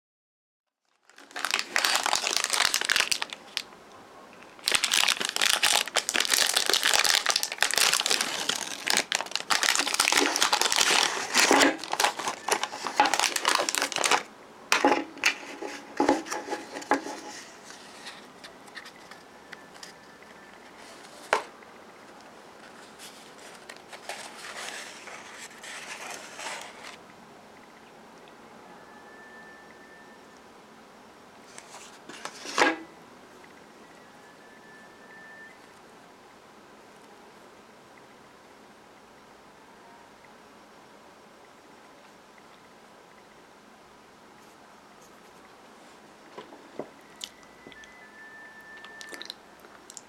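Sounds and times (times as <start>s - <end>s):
wrapper crinkling and tearing: 0.8s - 3.7s, 4.5s - 14.3s.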